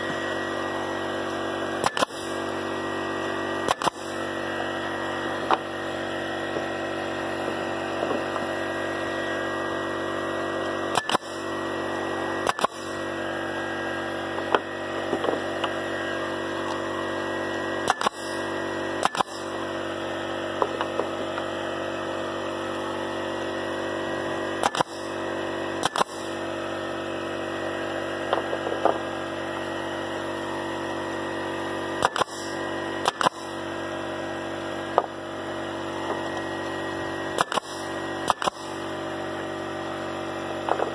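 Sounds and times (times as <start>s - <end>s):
mechanical drone: 0.0s - 40.9s
nail gun firing into wood: 1.7s - 2.6s, 3.6s - 4.3s, 10.9s - 11.5s, 12.4s - 13.2s, 17.8s - 19.7s, 24.6s - 26.5s, 32.0s - 33.7s, 37.3s - 39.0s.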